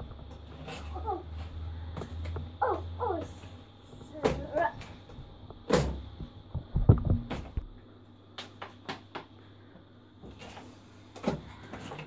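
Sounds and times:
dull thumps and knocks: 0:05.5 - 0:07.7.

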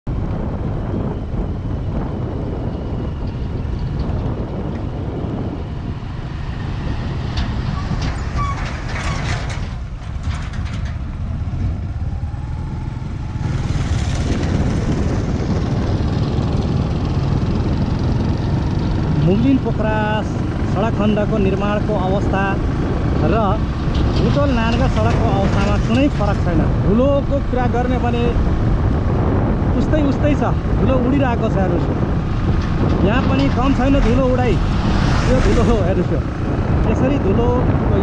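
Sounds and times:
vehicle rumbling on dirt road: 0:00.0 - 0:38.0
wind noise: 0:00.0 - 0:38.0
rattling and clicking: 0:06.5 - 0:11.8, 0:20.9 - 0:28.6, 0:31.9 - 0:36.5.

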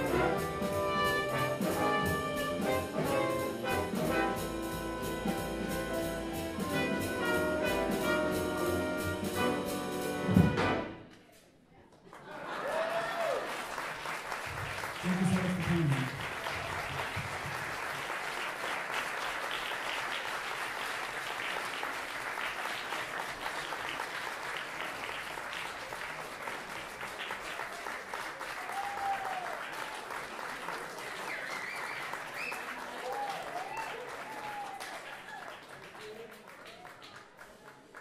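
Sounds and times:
audience applauding: 0:11.9 - 0:38.0
loud shout: 0:12.5 - 0:13.5, 0:28.6 - 0:29.6, 0:32.8 - 0:35.5
whoops: 0:12.6 - 0:13.5, 0:28.5 - 0:29.7, 0:31.3 - 0:35.6.

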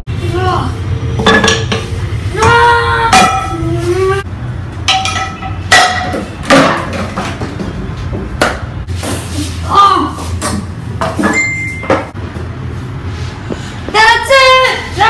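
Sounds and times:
pots and pans clanging: 0:01.2 - 0:01.9, 0:04.9 - 0:07.7.

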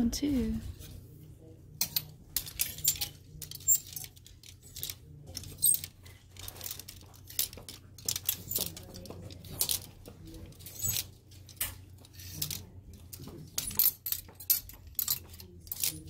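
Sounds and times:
plastic hangers clacking: 0:01.8 - 0:16.0
hangers sliding on metal rack: 0:10.5 - 0:16.0.

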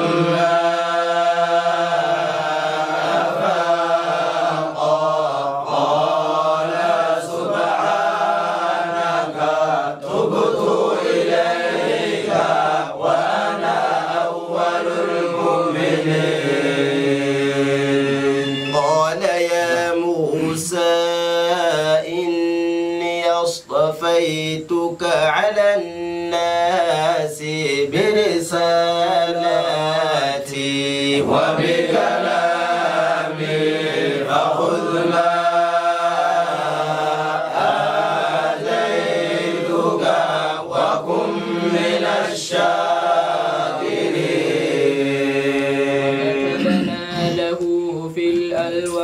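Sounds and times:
men chanting in unison: 0:00.0 - 0:49.0.

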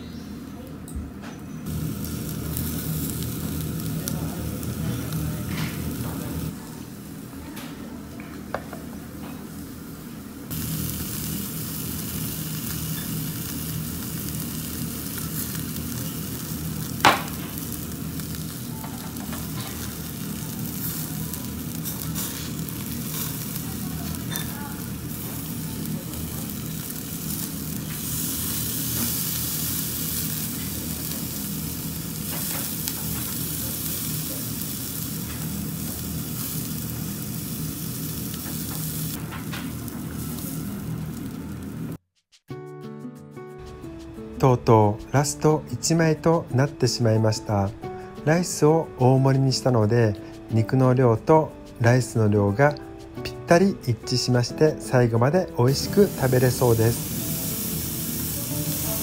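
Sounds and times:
meat sizzling on grill: 0:01.6 - 0:42.0, 0:44.7 - 0:59.0.

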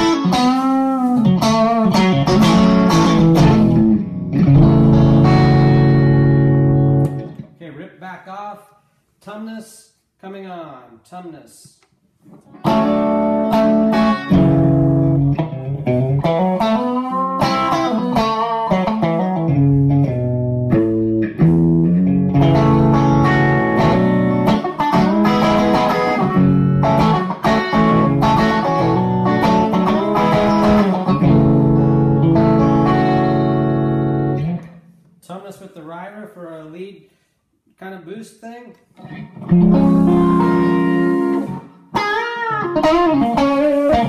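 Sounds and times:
overdriven electric guitar: 0:00.0 - 0:07.5, 0:12.3 - 0:34.8, 0:39.0 - 0:44.0.

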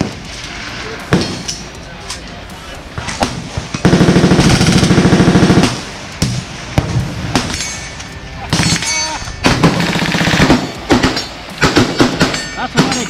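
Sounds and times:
rifle shots: 0:03.0 - 0:07.6, 0:08.5 - 0:13.0
rifle full-auto burst: 0:03.2 - 0:06.0, 0:09.4 - 0:12.4.

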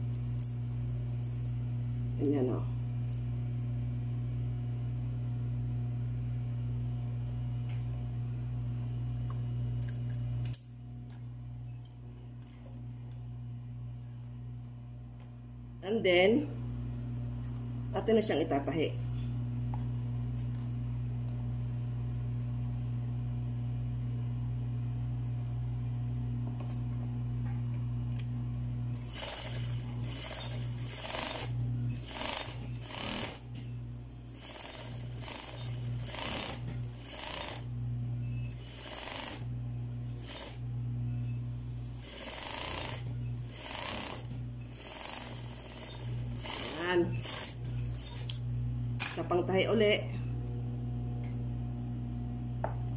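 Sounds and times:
electric sewing machine stitching: 0:29.0 - 0:33.5, 0:34.3 - 0:37.7, 0:38.5 - 0:39.5, 0:40.1 - 0:40.6, 0:41.7 - 0:48.4.

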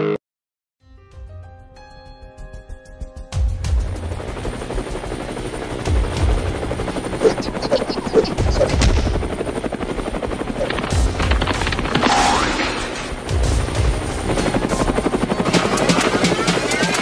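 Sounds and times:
helicopter rotor chopping: 0:03.8 - 0:17.0.

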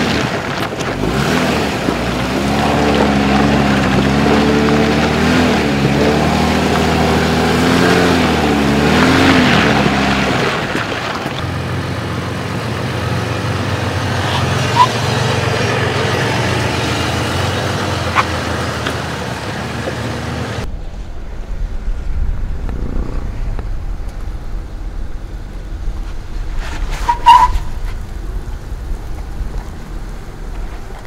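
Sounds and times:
car engine at low revs: 0:00.0 - 0:31.0
low engine rumble: 0:00.0 - 0:31.0
sharp squeak: 0:14.3 - 0:15.0, 0:26.7 - 0:27.9.

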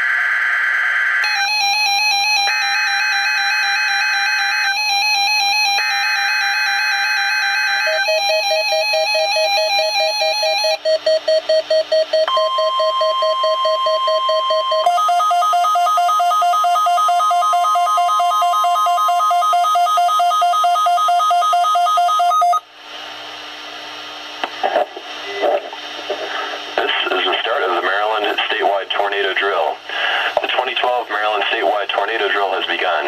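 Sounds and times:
steady warning alarm tone: 0:00.0 - 0:22.7
radio hiss: 0:24.4 - 0:33.0.

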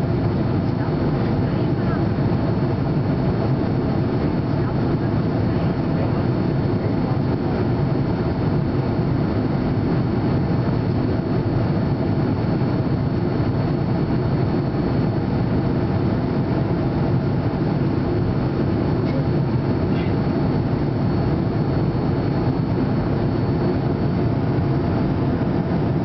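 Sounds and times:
jet engine rumble: 0:00.0 - 0:26.0.

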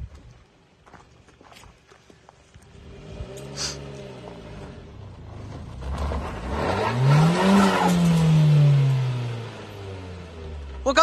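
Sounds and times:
suv engine revving: 0:02.6 - 0:11.0.

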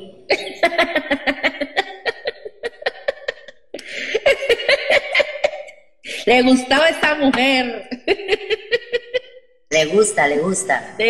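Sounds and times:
woman laughing: 0:00.3 - 0:06.4, 0:07.8 - 0:09.4.

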